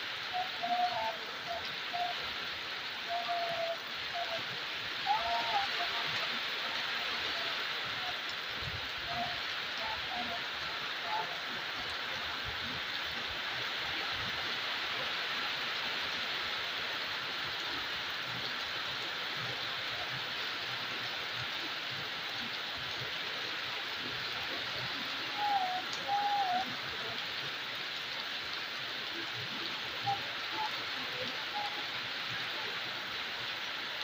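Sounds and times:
heavy rain pouring: 0.0 - 34.0
brief wavering call: 0.3 - 2.2, 5.1 - 6.0, 25.3 - 26.8.

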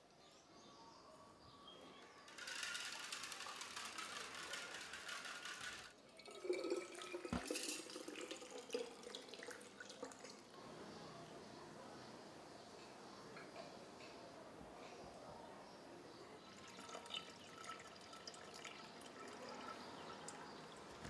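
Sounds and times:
water splashing and trickling: 6.0 - 10.6, 16.6 - 21.0.

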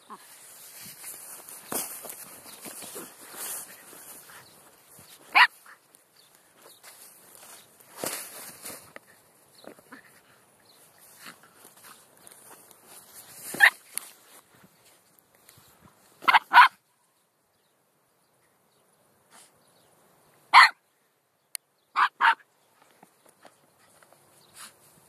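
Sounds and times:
small dog barking: 5.3 - 5.8, 13.6 - 13.8, 16.2 - 16.8, 20.5 - 20.8, 21.9 - 22.4.

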